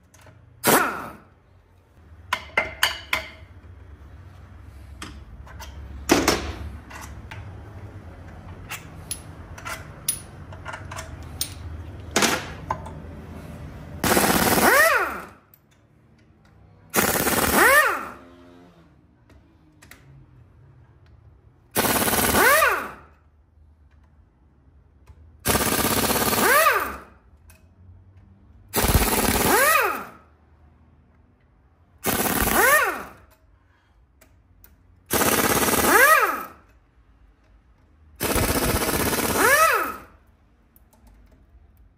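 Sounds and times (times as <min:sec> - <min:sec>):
impact wrench rattling: 0:35.1 - 0:36.8, 0:38.2 - 0:40.2.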